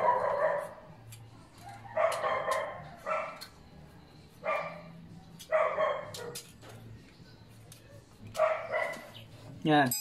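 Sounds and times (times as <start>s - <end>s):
dog barking: 0.0s - 0.8s, 1.9s - 3.5s, 4.4s - 6.5s, 8.3s - 9.2s.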